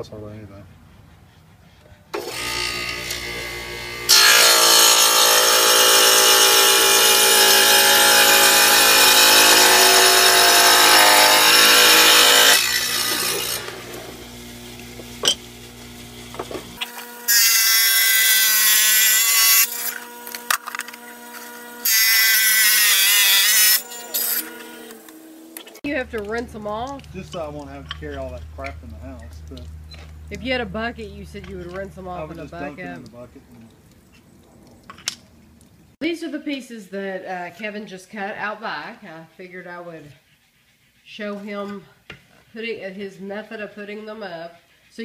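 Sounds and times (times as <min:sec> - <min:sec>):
wet tile saw cutting tile: 0:02.2 - 0:30.6
saw motor running: 0:02.2 - 0:33.0.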